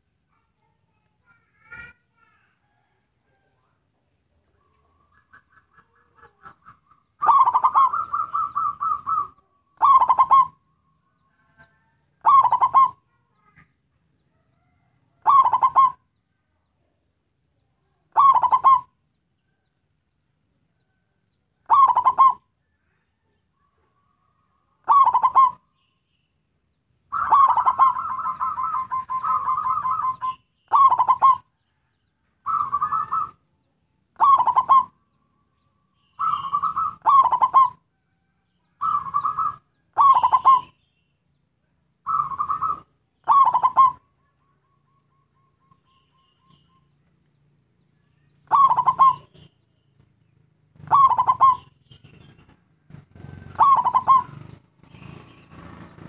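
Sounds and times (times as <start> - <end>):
dove cooing: 4.5 - 10.7, 11.4 - 13.7, 14.4 - 16.1, 18.0 - 19.6, 21.6 - 25.7, 27.1 - 31.8, 32.4 - 33.5, 34.2 - 37.9, 38.6 - 40.8, 42.0 - 46.9, 48.2 - 49.5, 50.7 - 55.8.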